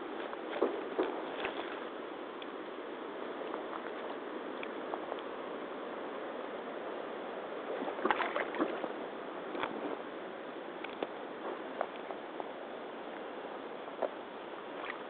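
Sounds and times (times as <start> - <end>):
water sloshing: 0.2 - 2.0, 7.7 - 9.0, 14.7 - 15.0.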